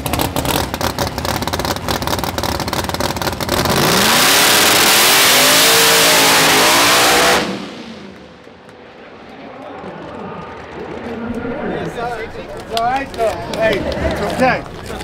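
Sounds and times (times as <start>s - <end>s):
drag car engine revving: 0.0s - 8.6s.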